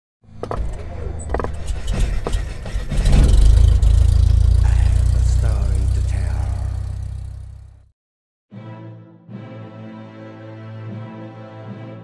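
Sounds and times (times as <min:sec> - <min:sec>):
deep rumbling drone: 0:00.8 - 0:07.9.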